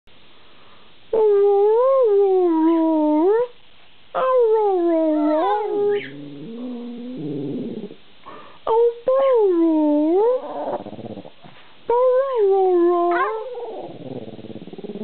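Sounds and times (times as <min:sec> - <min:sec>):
dog howling: 0:04.2 - 0:07.8, 0:11.9 - 0:15.0
dog moaning: 0:04.2 - 0:08.0, 0:08.7 - 0:15.0.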